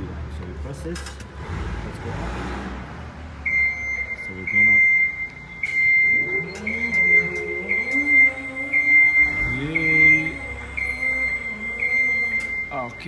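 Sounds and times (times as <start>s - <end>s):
high beeping motion alarm: 3.4s - 13.0s
hydraulic pump motor whining: 5.2s - 12.9s.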